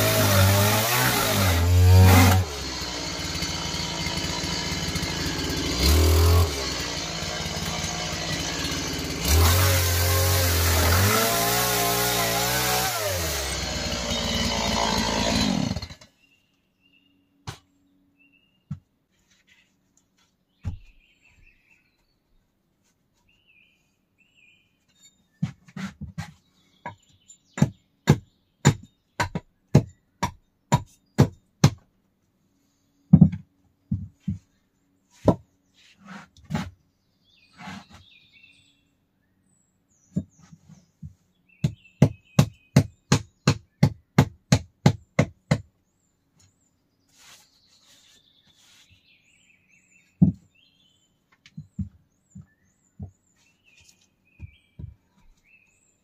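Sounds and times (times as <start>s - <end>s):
faint birds chirping: 13.6s - 44.2s, 45.0s - 56.0s
hand tool knocking on wood: 25.4s - 31.8s.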